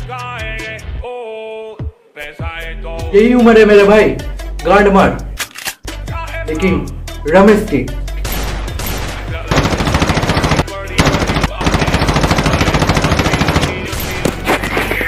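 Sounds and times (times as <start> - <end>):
machine-gun fire: 8.3 - 14.5.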